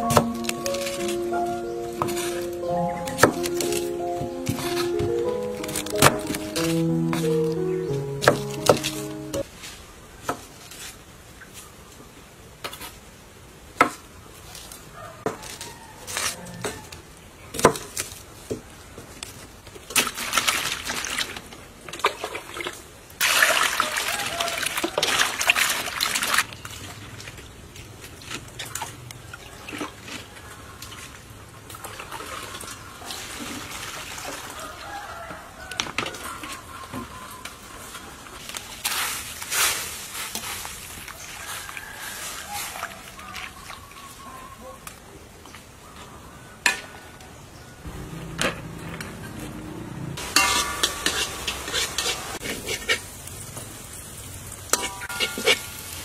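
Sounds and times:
rustling: 37.8 - 43.0
utensil stirring: 50.2 - 53.0.

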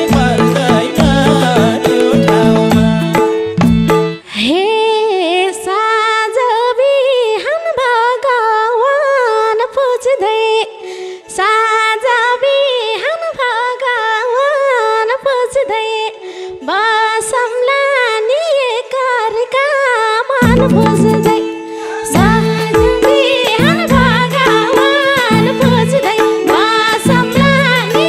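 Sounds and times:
drums: 0.0 - 4.1, 20.4 - 21.5, 22.2 - 28.0
woman singing into a microphone: 0.0 - 28.0.

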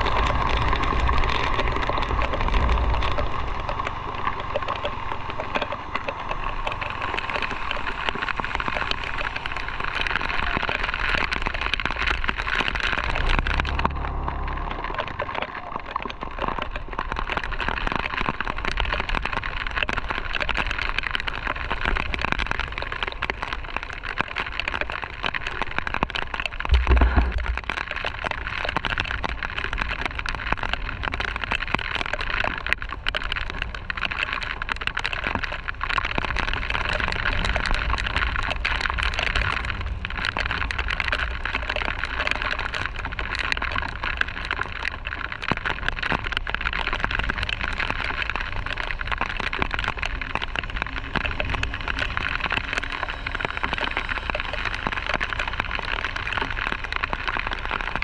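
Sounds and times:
motorcycle rumble: 0.0 - 16.7, 26.6 - 28.5
heavy rain pattering: 0.0 - 58.0
wind: 0.0 - 58.0
loud low thump: 26.7 - 27.6.

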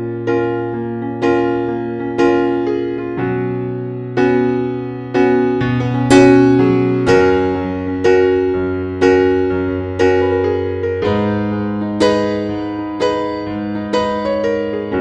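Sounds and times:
gentle piano music: 0.0 - 15.0.

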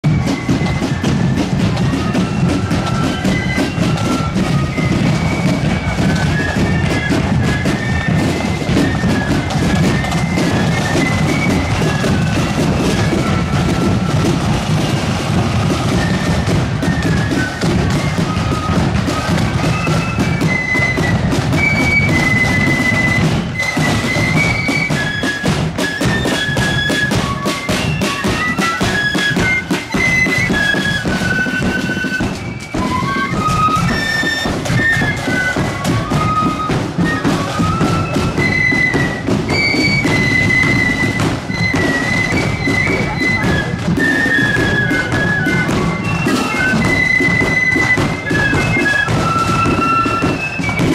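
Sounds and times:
flutes playing high melody: 0.0 - 50.9
snare drumming: 0.0 - 50.9.

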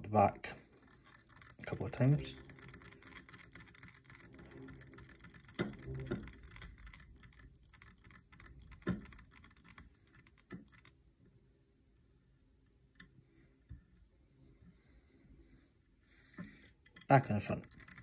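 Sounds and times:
thread wrapping ticks: 0.6 - 11.0, 16.3 - 18.0.

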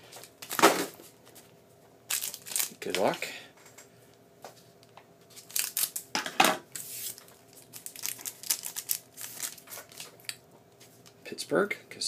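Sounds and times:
foil wrapper ripping and crinkling: 2.1 - 3.1, 5.4 - 6.0, 6.8 - 10.3.

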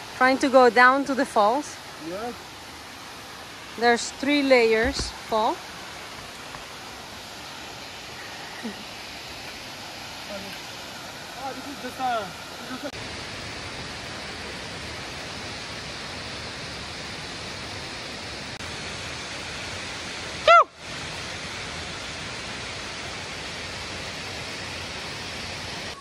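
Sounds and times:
waterfall rushing: 0.0 - 26.0.

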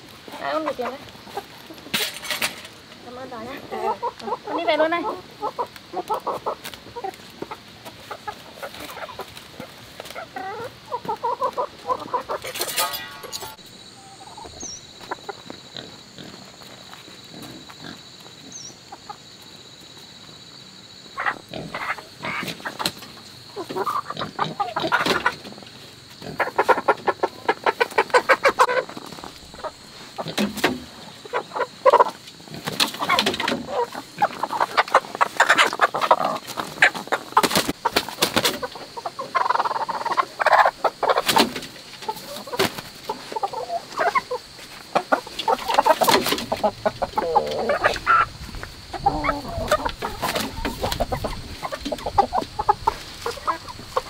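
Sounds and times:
chickens clucking and squawking: 0.0 - 54.0.

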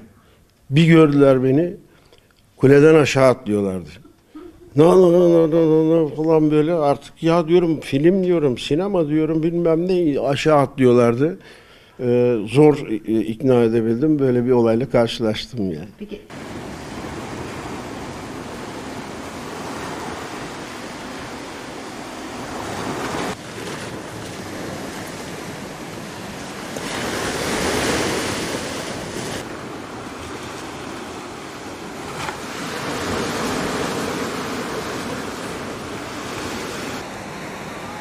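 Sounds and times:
surf breaking on pebbles: 16.3 - 37.9.

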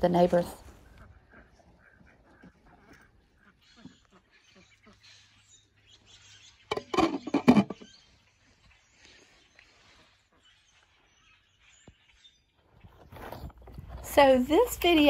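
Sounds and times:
faint yard background: 0.0 - 15.0
ducks quacking: 0.8 - 5.4.

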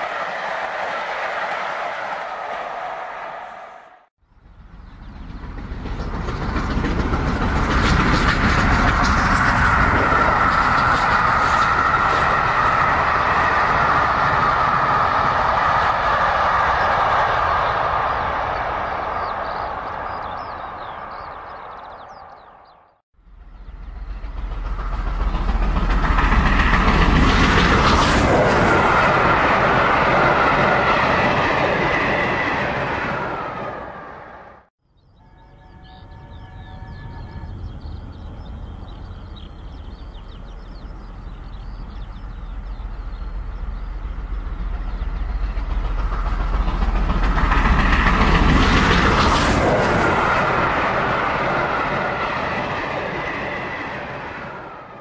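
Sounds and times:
model train rumbling: 4.3 - 21.0, 23.2 - 34.0, 35.7 - 55.0
rapid wheel clicking on rails: 4.6 - 18.6, 24.1 - 33.2, 44.0 - 54.3.

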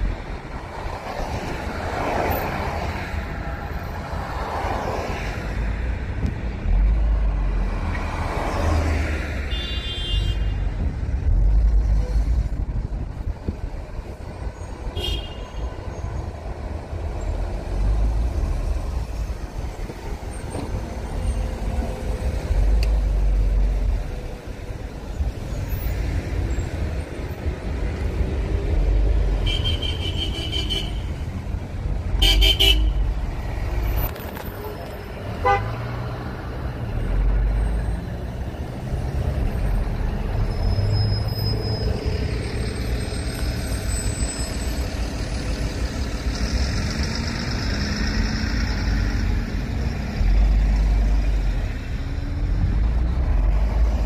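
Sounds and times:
traffic rumble: 0.0 - 54.0
vehicles rushing past: 0.0 - 54.0
car horn toots: 32.2 - 33.0, 35.4 - 35.7.

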